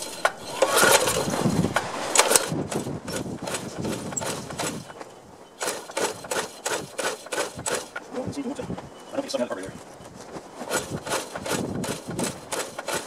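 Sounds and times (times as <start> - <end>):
engine recoil starter pulled: 0.0 - 5.0, 5.6 - 8.0, 10.7 - 13.0.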